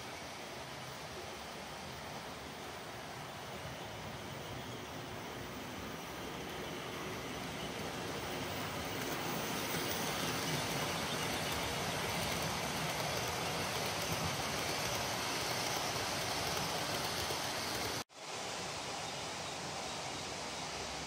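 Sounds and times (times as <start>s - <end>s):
model train running on track: 0.0s - 18.0s.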